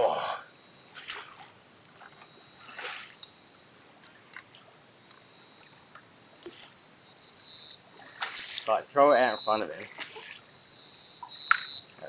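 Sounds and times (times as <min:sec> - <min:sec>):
water splashes and drips: 0:00.9 - 0:06.7, 0:08.0 - 0:10.6, 0:11.2 - 0:11.8.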